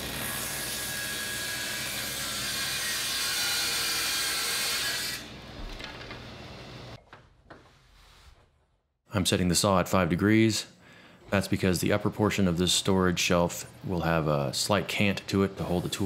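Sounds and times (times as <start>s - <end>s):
table saw cutting wood: 0.0s - 5.4s.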